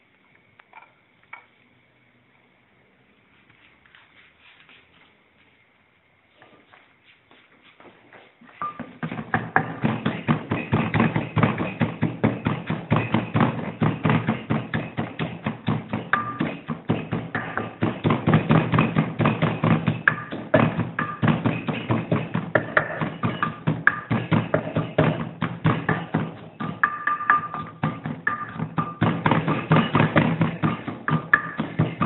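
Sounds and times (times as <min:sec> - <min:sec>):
pestle pounding in mortar: 0:08.6 - 0:32.0.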